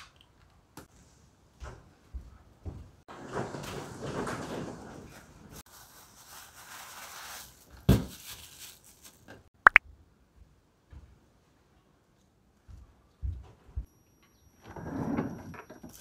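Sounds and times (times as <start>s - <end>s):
cloth bag and plastic wrap rustling: 5.6s - 9.4s.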